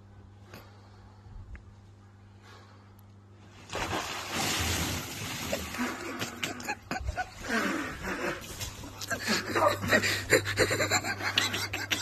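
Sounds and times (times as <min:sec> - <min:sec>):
water splashing in hot tub: 0:03.4 - 0:09.6.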